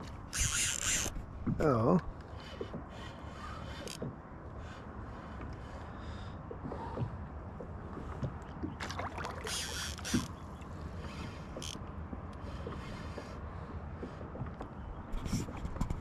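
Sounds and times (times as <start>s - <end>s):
low wash of wind and water: 0.0s - 16.0s
fish splashing and thrashing: 6.5s - 10.5s.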